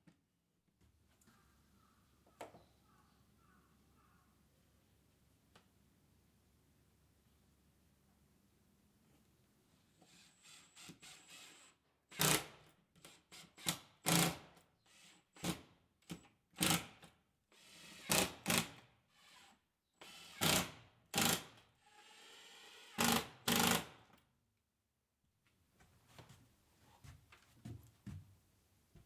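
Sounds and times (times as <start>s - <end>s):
drill driving screws: 10.0s - 15.6s, 16.5s - 24.1s.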